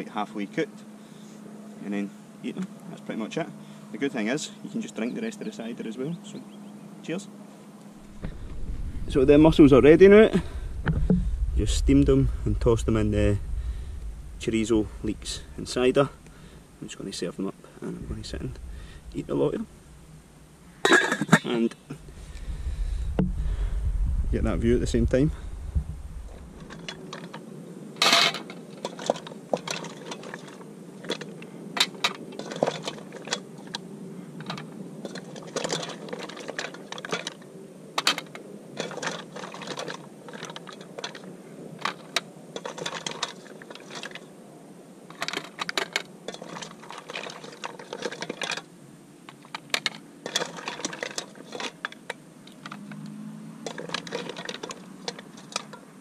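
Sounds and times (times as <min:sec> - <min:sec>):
mussel shells clicking: 0:49.3 - 0:55.8.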